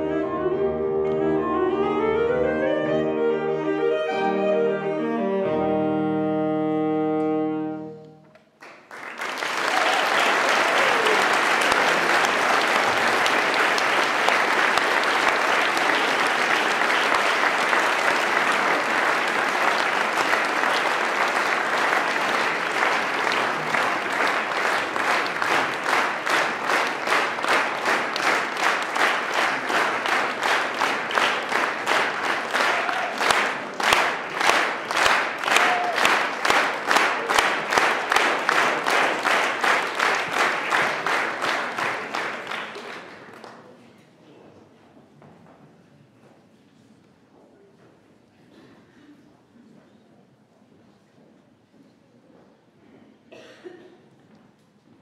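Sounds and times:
saxophone and piano chord: 0:00.0 - 0:08.2
rhythmic clapping in unison: 0:08.3 - 0:43.6
audience applause: 0:08.3 - 0:43.8.

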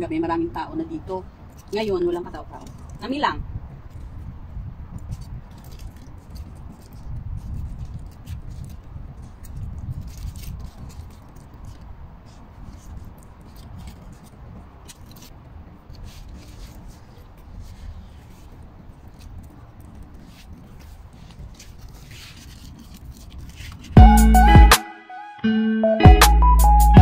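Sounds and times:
aluminium foil crinkling: 0:01.5 - 0:03.2, 0:05.0 - 0:24.0.

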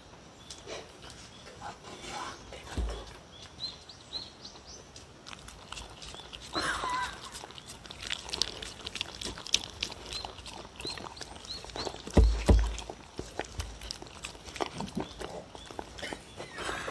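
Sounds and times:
dog lapping and chewing food: 0:04.9 - 0:16.9
heavy thumps: 0:12.1 - 0:12.9.

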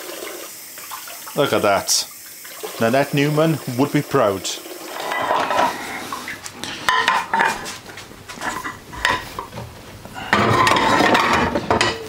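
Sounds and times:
crockery and cutlery clattering: 0:04.9 - 0:05.8, 0:06.9 - 0:07.8, 0:08.4 - 0:12.0.

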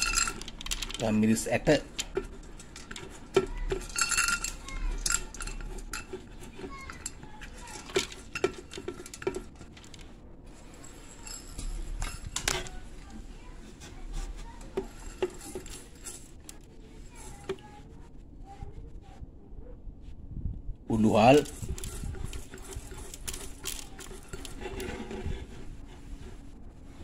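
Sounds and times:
utensil clinking on blender jar: 0:00.0 - 0:09.9, 0:10.7 - 0:12.8, 0:14.5 - 0:16.6, 0:21.2 - 0:25.3.

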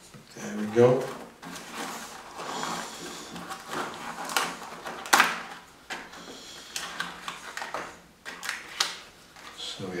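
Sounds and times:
paper rustling: 0:00.5 - 0:09.8
sharp paper clicks: 0:02.7 - 0:05.7, 0:06.6 - 0:09.5.

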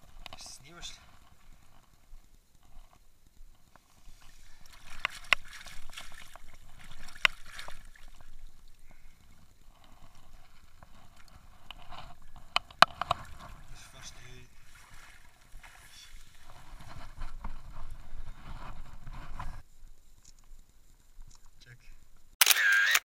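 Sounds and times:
fish thrashing and splashing: 0:03.9 - 0:13.6
sharp slaps of water: 0:04.6 - 0:08.2.

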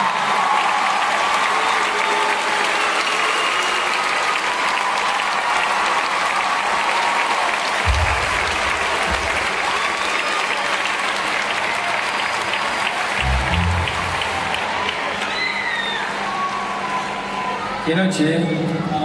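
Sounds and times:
audience applauding: 0:00.0 - 0:17.6
low rumble: 0:07.9 - 0:09.8, 0:13.2 - 0:15.1.

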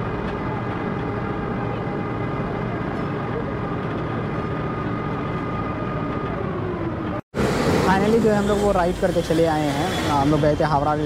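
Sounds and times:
ferry engine droning: 0:00.0 - 0:11.0.

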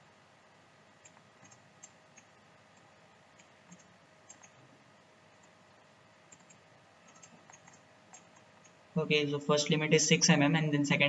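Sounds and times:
faint computer mouse clicks: 0:01.0 - 0:04.6.

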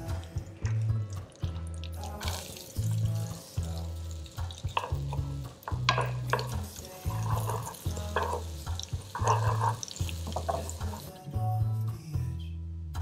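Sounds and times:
background music with bass line: 0:00.0 - 0:13.0
onions sizzling in a frying pan: 0:02.0 - 0:11.2
spatula scraping a pan: 0:04.5 - 0:11.1.

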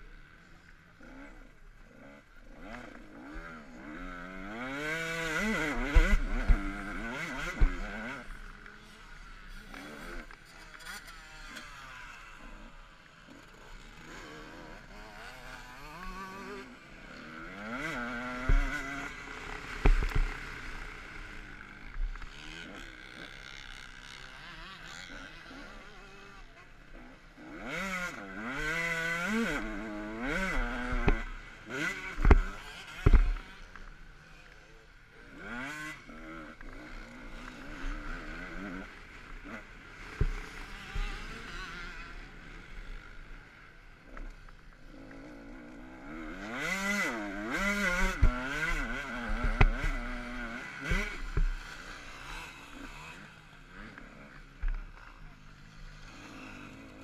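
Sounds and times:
motocross bike engine revving: 0:00.0 - 0:57.0.

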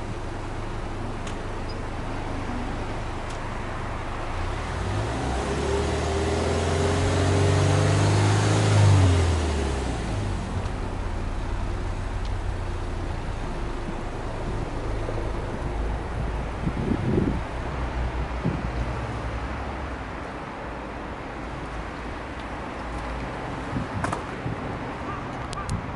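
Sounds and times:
car engine revving: 0:00.0 - 0:17.4.

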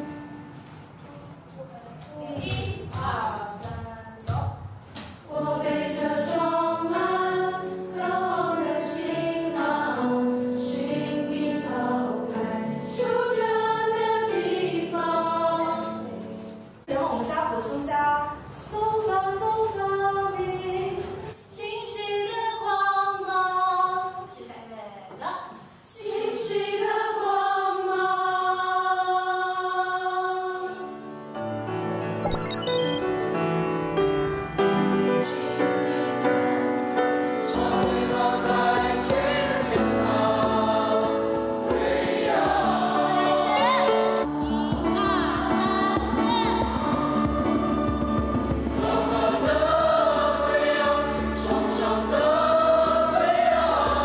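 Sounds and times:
piano notes: 0:00.0 - 0:02.1, 0:31.1 - 0:54.0
music: 0:00.0 - 0:24.2, 0:26.1 - 0:54.0
choir singing long notes: 0:05.3 - 0:16.2, 0:26.0 - 0:31.0, 0:37.5 - 0:54.0.

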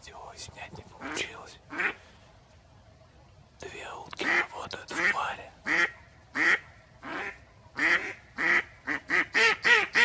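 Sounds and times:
duck quacking: 0:01.0 - 0:02.0, 0:04.2 - 0:10.0.

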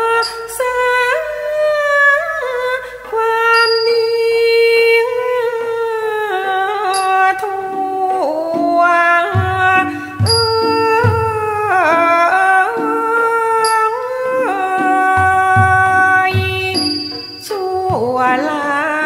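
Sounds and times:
person singing ornamented notes: 0:00.0 - 0:19.0
small high-ringing cymbal strokes: 0:03.5 - 0:04.8, 0:16.8 - 0:17.6.

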